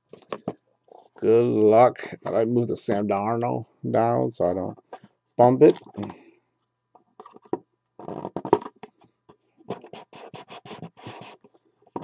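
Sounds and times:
cardboard scraping and rubbing: 0:07.2 - 0:12.0.

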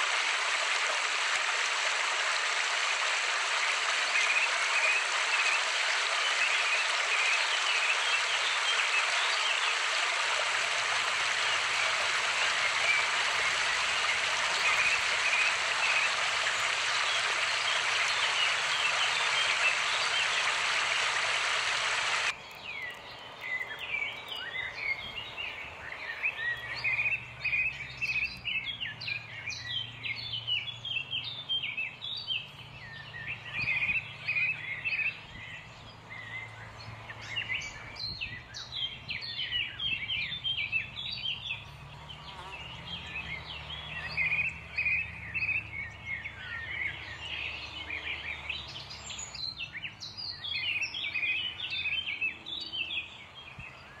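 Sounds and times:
many birds chirping: 0:00.0 - 0:54.0.

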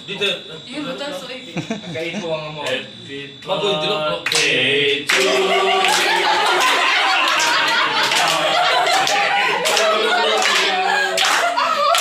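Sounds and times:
voices: 0:00.0 - 0:12.0
laughter: 0:01.4 - 0:02.3, 0:05.3 - 0:12.0
people clapping: 0:04.2 - 0:12.0.

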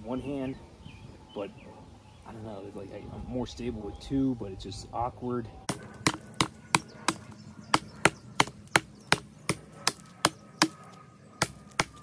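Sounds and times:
tomahawk chopping into wood: 0:05.7 - 0:10.8, 0:11.4 - 0:12.0.

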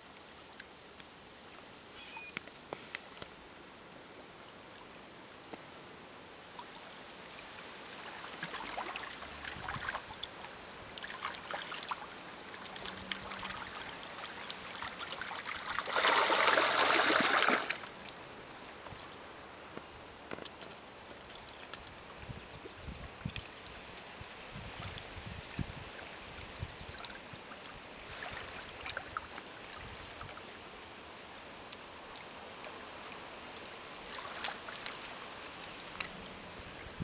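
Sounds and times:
water splashing and trickling: 0:04.1 - 0:37.0
loud burst of splashing: 0:15.7 - 0:17.8.

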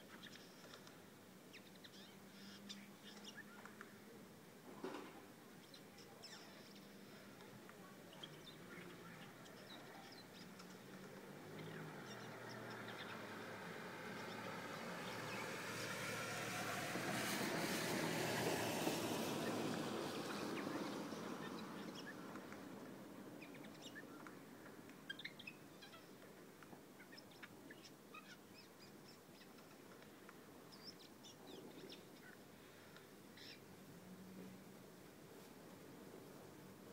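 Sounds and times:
bird calls and clicks: 0:00.1 - 0:01.0, 0:01.6 - 0:04.0, 0:05.7 - 0:13.2, 0:20.1 - 0:22.7, 0:23.4 - 0:33.6
rush of background noise: 0:00.4 - 0:36.9.

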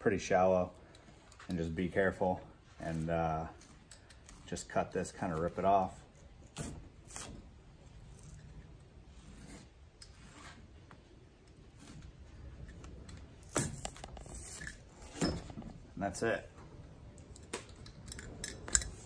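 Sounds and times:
foam grip being cut and torn: 0:06.4 - 0:07.5
scratching and rubbing: 0:06.5 - 0:11.0, 0:11.6 - 0:15.2.

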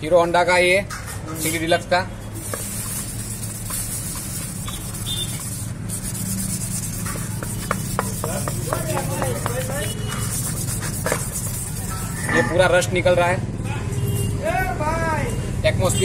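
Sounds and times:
wet sandpaper scratching plastic: 0:02.4 - 0:12.3.

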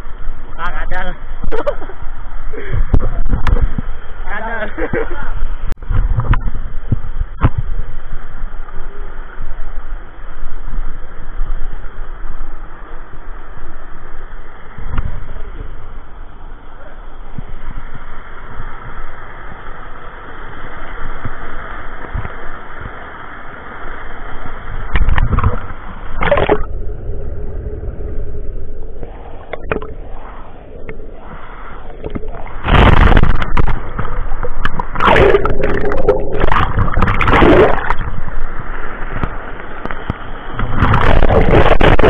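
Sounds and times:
water splashing and gurgling: 0:20.4 - 0:42.0.

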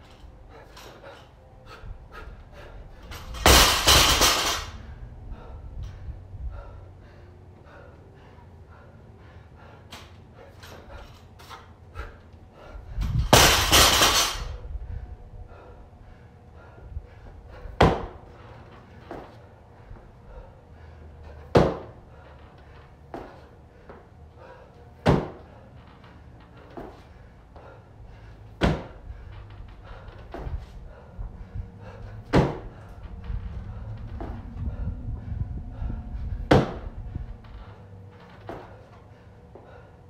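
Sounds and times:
barbell crashing onto rubber mats: 0:03.4 - 0:04.7, 0:13.2 - 0:14.5
feet landing on wooden box: 0:17.8 - 0:18.2, 0:21.5 - 0:22.0, 0:25.0 - 0:25.4, 0:28.6 - 0:29.0, 0:32.2 - 0:32.8, 0:36.4 - 0:36.9.

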